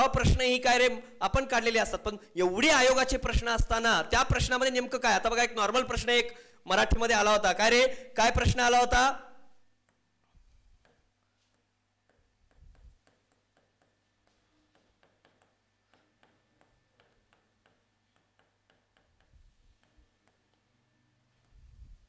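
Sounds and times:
stylus tapping on touchscreen: 10.7s - 20.7s.

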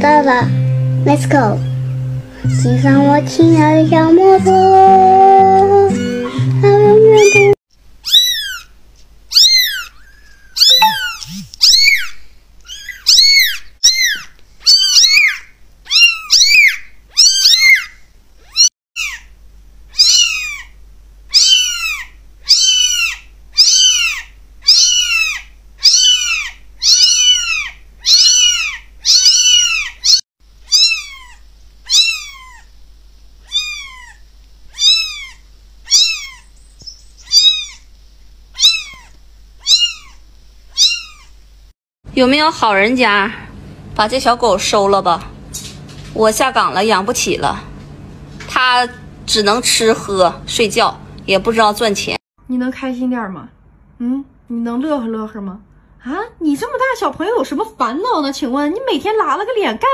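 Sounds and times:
kittens meowing: 1.6s - 3.0s, 5.6s - 8.7s, 9.3s - 12.1s, 12.7s - 19.2s, 19.9s - 32.7s, 33.4s - 37.9s, 38.6s - 41.4s.

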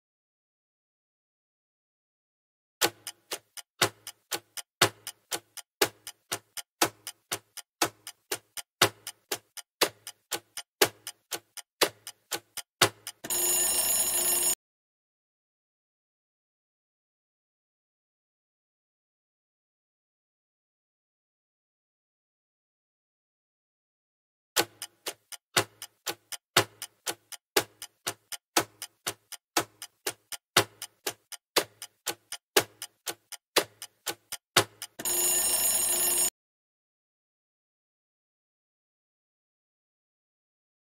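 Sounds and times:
clock ticking: 2.8s - 14.6s, 24.6s - 36.3s
alarm-like ringing: 13.2s - 14.6s, 35.0s - 36.3s.

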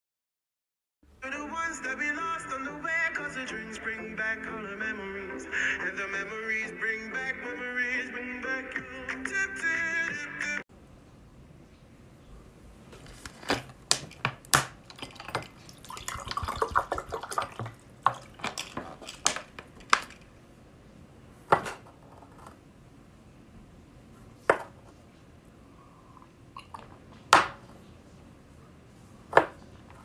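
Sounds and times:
water pouring into a glass: 14.9s - 20.1s.

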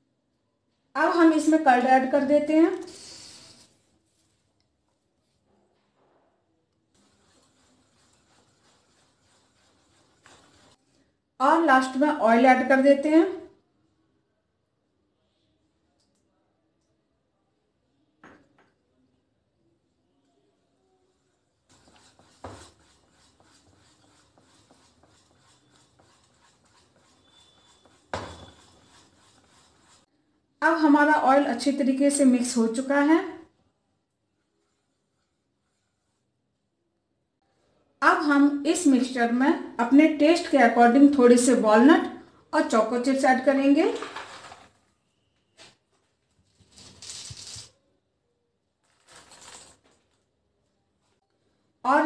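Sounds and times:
whisk knocking bowl: 7.0s - 10.8s, 21.7s - 30.1s
whisk tapping and scraping bowl: 7.0s - 11.0s, 21.7s - 30.1s
chocolate chips pattering on batter: 48.8s - 50.1s.

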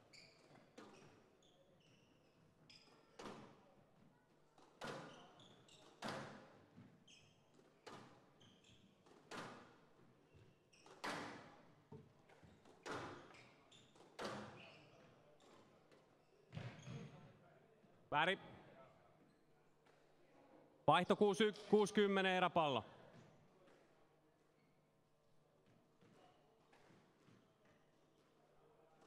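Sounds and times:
shoes squeaking on floor: 0.0s - 3.0s, 4.9s - 6.1s, 6.8s - 7.4s, 12.4s - 15.6s.

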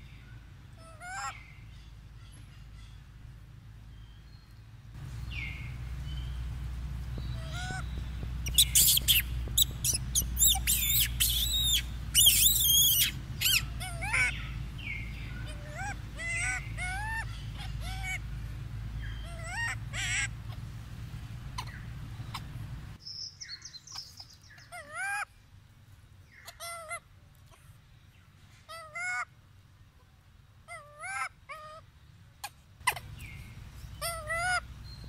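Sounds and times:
low steady hum: 0.0s - 35.0s
monkey screaming: 0.8s - 1.4s, 7.4s - 7.8s, 8.5s - 14.5s, 15.4s - 18.2s, 19.2s - 20.6s, 24.7s - 25.3s, 30.7s - 31.8s, 32.8s - 33.1s, 34.0s - 34.6s
monkey squealing: 8.4s - 14.4s, 15.4s - 18.2s, 19.3s - 20.6s, 32.8s - 33.1s, 34.0s - 34.6s.

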